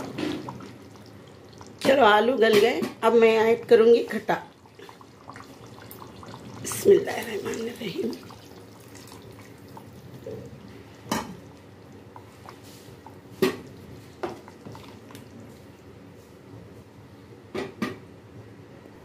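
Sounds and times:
liquid pouring into pot: 0.0 - 2.4, 3.6 - 15.8.

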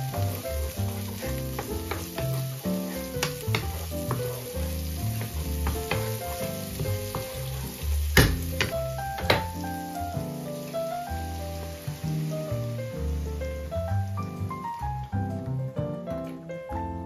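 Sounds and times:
wooden spatula stirring: 0.0 - 8.7
onions sizzling in a frying pan: 0.0 - 14.5
background music with bass: 0.0 - 17.0.

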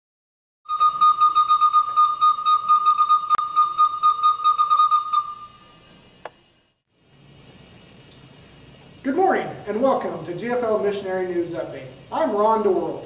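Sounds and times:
pulsing high whistle tone: 0.7 - 6.0.

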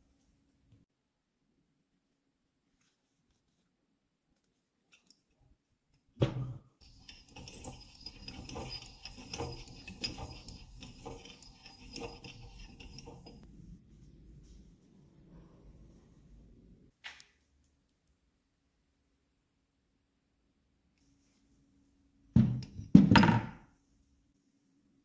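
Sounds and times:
meat grinder scraping and clinking: 6.8 - 13.5.

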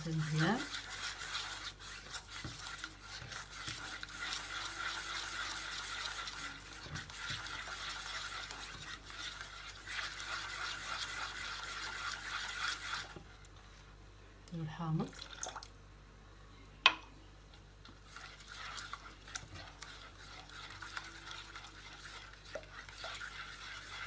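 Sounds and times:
spatula scraping a bowl: 0.0 - 13.2, 17.8 - 24.0.

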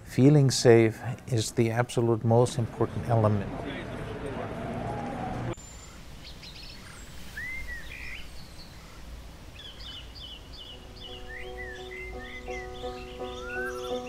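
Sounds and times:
birds chirping and calling: 9.6 - 14.0
soft music: 10.7 - 14.0.

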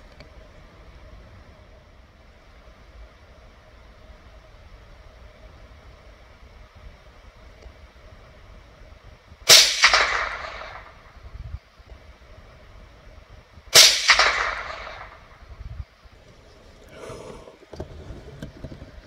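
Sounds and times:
rifle shots with echo: 9.5 - 11.2, 13.7 - 15.5.

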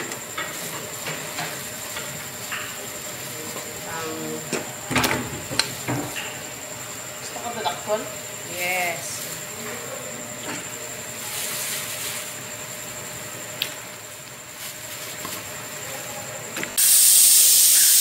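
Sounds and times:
steam hissing from pressure cooker: 16.8 - 18.0.

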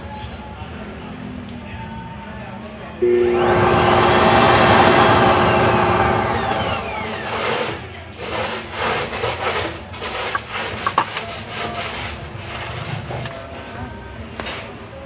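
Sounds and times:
electric blower spinning down: 3.0 - 7.8.

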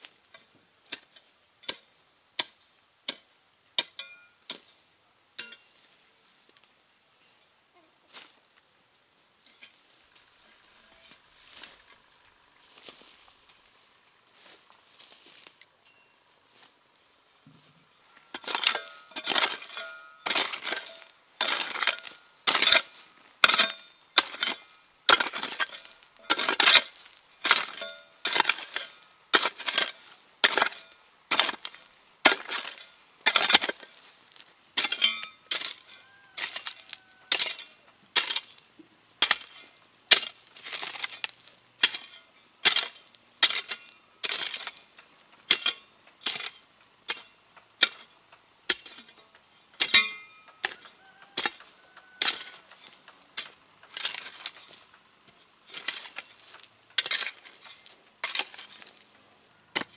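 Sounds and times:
hoe chopping into dry earth: 18.3 - 38.6, 39.2 - 44.9.

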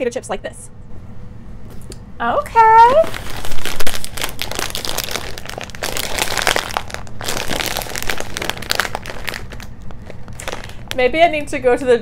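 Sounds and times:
plastic chip bag crackling: 2.9 - 11.2.

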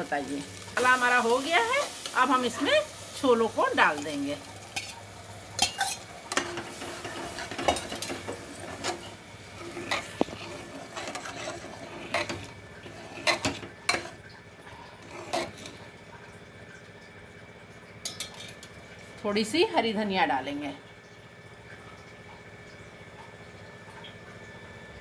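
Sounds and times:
ladle scraping through food: 5.6 - 15.9.

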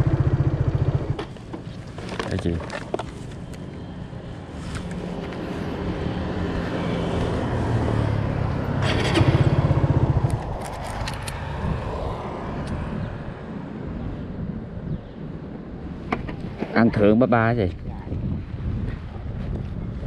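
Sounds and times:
motorbike engines passing: 4.7 - 13.4.

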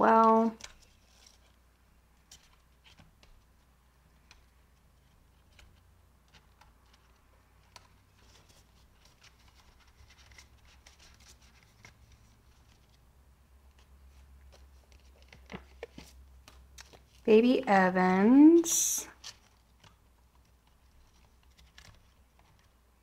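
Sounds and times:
banknotes rustling and clicking: 0.0 - 13.0, 13.6 - 17.4, 19.1 - 23.0
plastic envelopes being flipped: 5.4 - 13.0, 13.6 - 17.3, 19.1 - 22.8.

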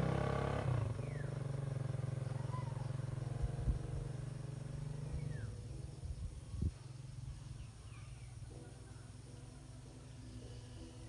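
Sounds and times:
faint bird chirps: 1.0 - 1.4, 2.1 - 3.4, 5.0 - 11.0.

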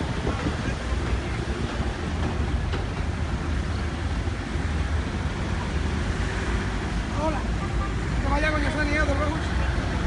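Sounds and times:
wind on microphone: 0.0 - 2.9
minibus engine driving slowly: 0.0 - 10.0.

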